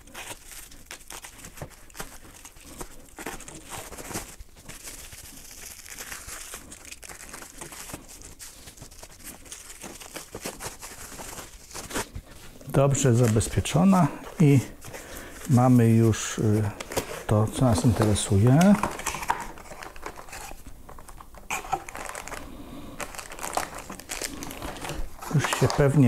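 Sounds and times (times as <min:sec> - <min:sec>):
plastic packaging crinkling: 0:00.0 - 0:26.0.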